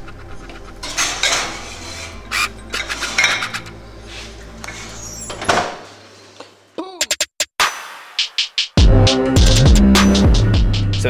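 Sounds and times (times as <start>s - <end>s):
ceramic dish scraping on oven rack: 0.7s - 5.4s.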